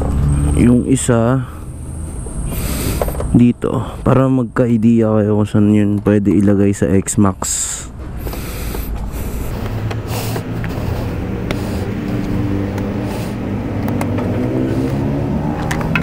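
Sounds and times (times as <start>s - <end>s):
vehicle engine humming: 0.0s - 6.2s, 7.4s - 16.0s.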